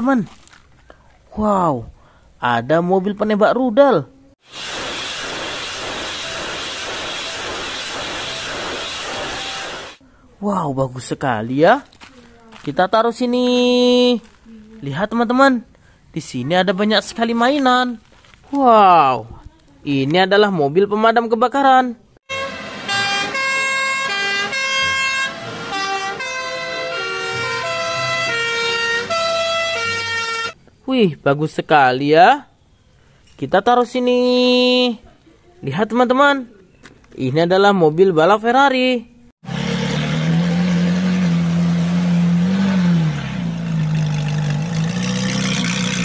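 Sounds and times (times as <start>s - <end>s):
two-tone fire engine sirens: 22.3s - 30.6s
car engine idling and revving: 39.4s - 46.0s.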